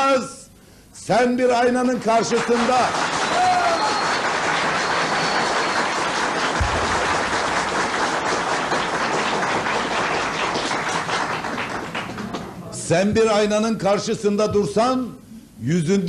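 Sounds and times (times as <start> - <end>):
audience applauding: 2.2 - 12.6.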